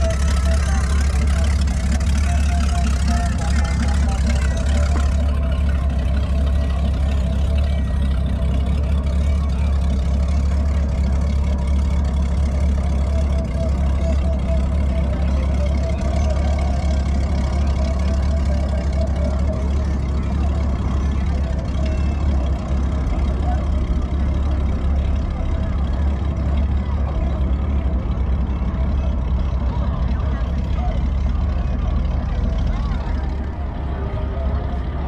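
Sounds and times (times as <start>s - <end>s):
faint murmur of voices: 0.0s - 35.0s
low engine hum: 0.0s - 35.0s.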